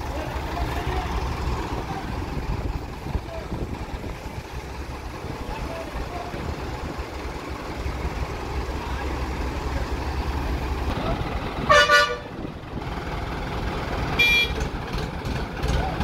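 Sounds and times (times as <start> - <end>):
diesel engines rumbling: 0.0 - 16.0
horn tooting: 11.7 - 12.3, 14.2 - 14.6.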